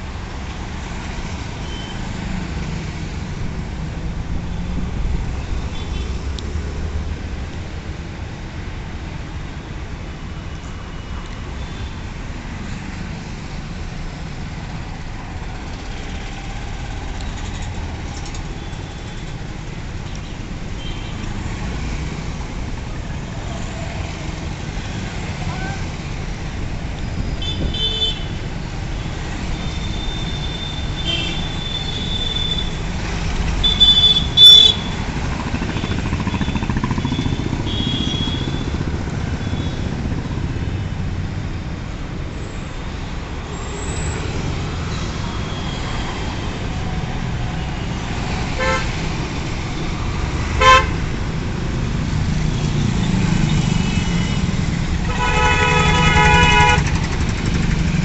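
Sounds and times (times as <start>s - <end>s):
traffic engines rumbling: 0.0s - 58.0s
vehicle horn toots: 33.6s - 35.0s, 48.6s - 48.9s, 50.6s - 51.0s, 55.1s - 57.0s.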